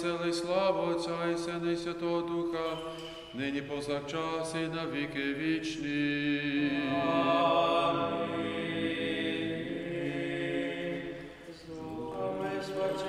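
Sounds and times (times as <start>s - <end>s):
men singing a chant a cappella: 3.4s - 13.0s.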